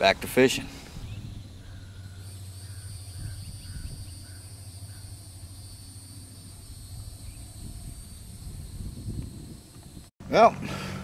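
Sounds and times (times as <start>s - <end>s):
low steady rumble: 0.0s - 11.0s
high-pitched insect buzzing: 1.6s - 10.0s.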